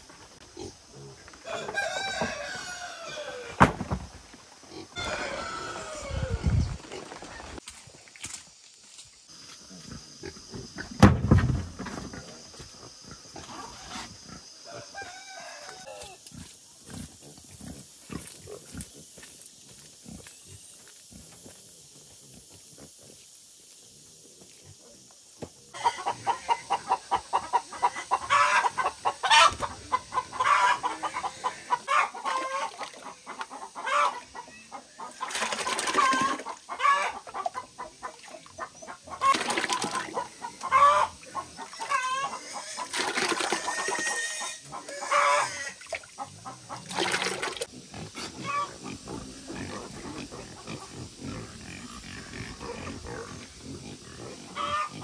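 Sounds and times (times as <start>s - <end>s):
loud high-pitched animal cries: 43.6s - 45.8s.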